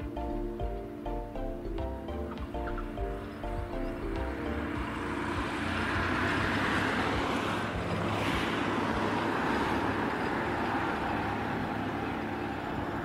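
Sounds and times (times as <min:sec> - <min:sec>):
light aircraft engine and propeller: 0:00.0 - 0:13.0.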